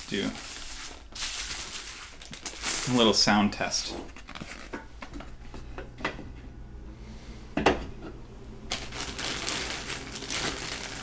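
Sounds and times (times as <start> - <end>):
rustling: 8.7 - 11.0.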